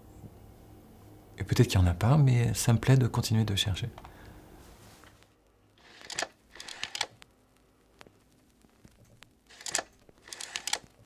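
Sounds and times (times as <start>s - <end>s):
slide projector clicking and clacking: 5.8s - 7.2s, 9.5s - 11.0s.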